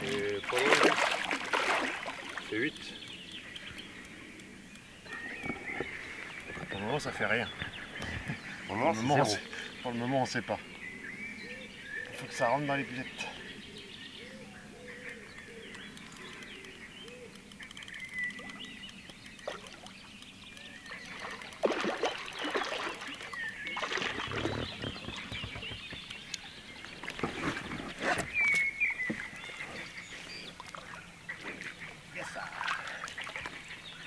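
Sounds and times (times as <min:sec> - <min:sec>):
water splashing and sloshing: 0:00.0 - 0:03.0, 0:18.3 - 0:34.0
birds chirping: 0:00.0 - 0:34.0.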